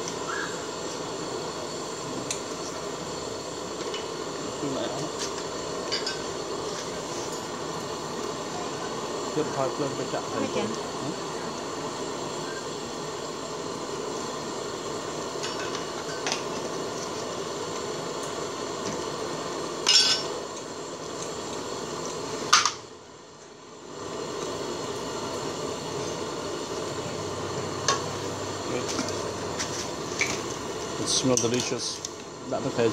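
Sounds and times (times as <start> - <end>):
gas burner hiss: 0.0 - 32.9.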